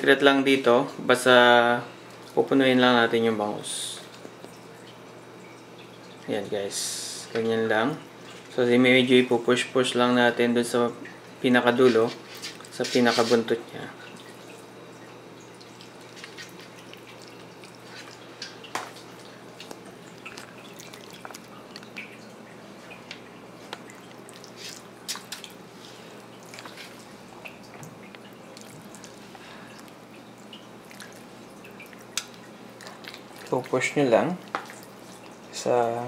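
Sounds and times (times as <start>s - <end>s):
low steady hum: 0.0s - 36.0s
spoon scooping fish filling: 15.7s - 35.5s.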